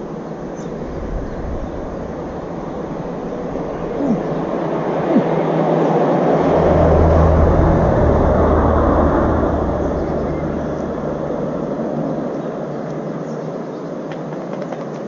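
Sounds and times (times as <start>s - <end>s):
motor vehicle passing: 0.0s - 5.3s, 6.2s - 12.8s.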